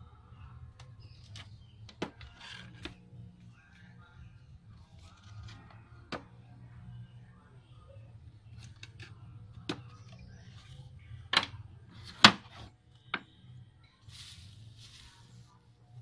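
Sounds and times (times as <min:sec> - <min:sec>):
short rustle: 0:14.0 - 0:15.6.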